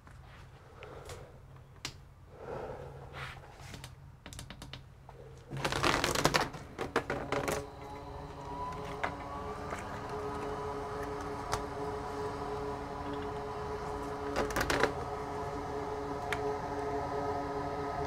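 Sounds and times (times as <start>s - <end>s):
steady low hum: 5.0s - 18.0s
multi-tone hum rising: 6.7s - 18.0s.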